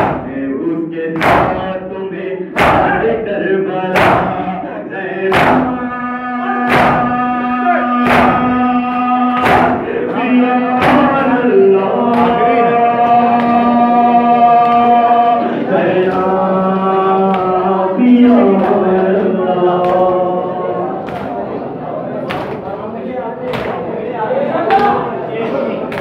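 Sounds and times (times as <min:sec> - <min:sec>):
men chanting a lament: 0:00.0 - 0:26.0
hands slapping chests: 0:01.2 - 0:01.6, 0:02.6 - 0:02.9, 0:04.0 - 0:04.4, 0:05.3 - 0:05.7, 0:08.0 - 0:09.8, 0:21.0 - 0:21.5, 0:22.2 - 0:22.7, 0:23.5 - 0:23.8.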